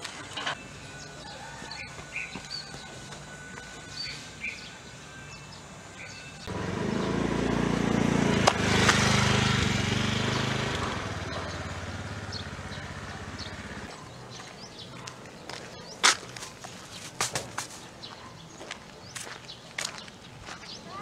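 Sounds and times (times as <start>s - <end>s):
vehicle engine driving past: 6.4s - 14.0s.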